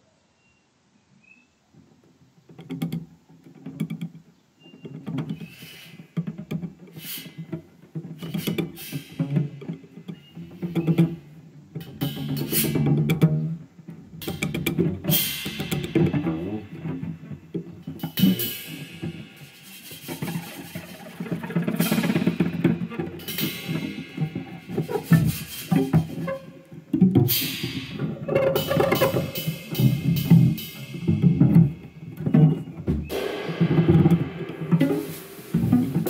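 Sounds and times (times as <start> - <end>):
sharp drum and cymbal hits: 14.2 - 26.3, 27.3 - 36.0
jazz quartet playing: 33.7 - 36.0.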